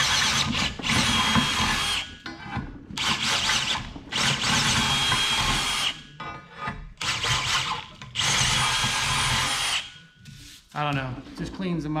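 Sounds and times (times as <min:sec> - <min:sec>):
cordless drill motor whine: 0:00.0 - 0:02.1.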